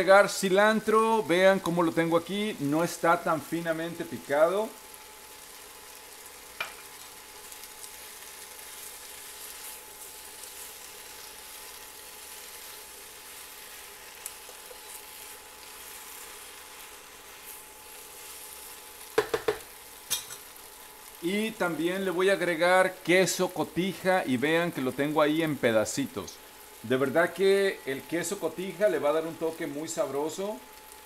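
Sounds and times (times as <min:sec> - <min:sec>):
pasta sizzling in a frying pan: 0:00.0 - 0:31.0
utensil knocking against pan: 0:19.2 - 0:20.3.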